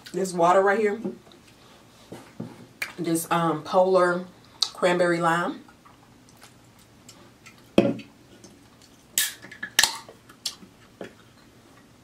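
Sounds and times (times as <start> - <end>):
can tab cracking with fizz: 9.2 - 10.1.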